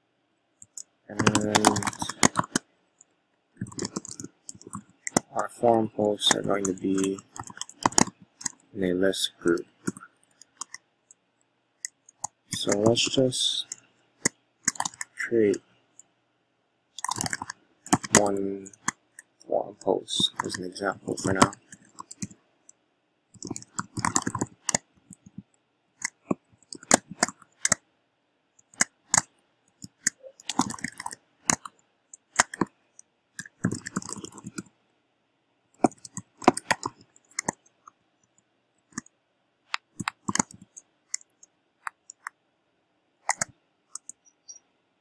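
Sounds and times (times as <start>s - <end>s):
computer keyboard key clicks: 0.6s - 2.6s, 6.3s - 8.6s, 14.7s - 15.2s, 17.0s - 19.0s, 20.2s - 22.3s, 23.4s - 25.4s, 26.0s - 27.8s, 28.6s - 32.7s, 33.4s - 34.7s, 35.8s - 37.6s, 39.7s - 42.3s, 43.3s - 44.2s.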